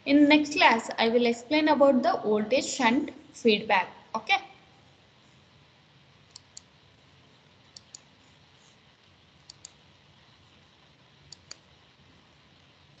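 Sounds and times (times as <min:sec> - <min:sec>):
faint room hiss: 0:00.0 - 0:13.0
computer mouse clicks: 0:06.3 - 0:06.7, 0:07.7 - 0:08.1, 0:09.4 - 0:09.8, 0:11.3 - 0:11.7.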